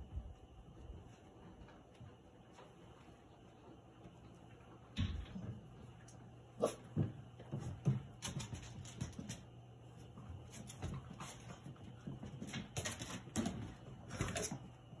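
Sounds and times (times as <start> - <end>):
dog claws clicking and scratching: 10.6 - 14.6.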